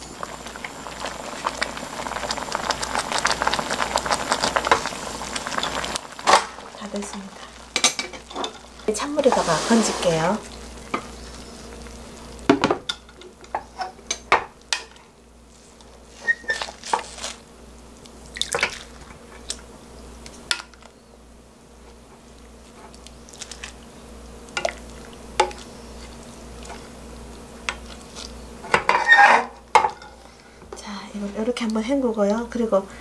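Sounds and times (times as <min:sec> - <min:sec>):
wooden spoon scraping steel pot: 0:08.2 - 0:10.4, 0:28.8 - 0:30.2.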